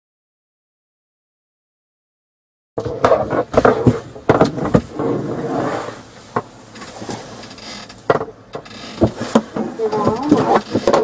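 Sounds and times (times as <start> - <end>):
knocks and bumps on plastic seat: 2.8 - 5.1, 8.0 - 11.0
clothing rustle: 3.3 - 8.0.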